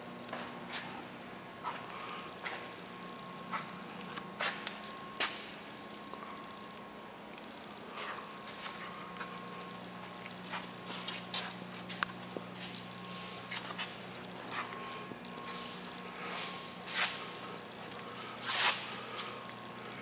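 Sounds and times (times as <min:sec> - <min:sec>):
steady low hum: 0:00.0 - 0:20.0
footsteps on concrete floor: 0:01.6 - 0:02.8, 0:03.5 - 0:05.6, 0:07.9 - 0:19.5.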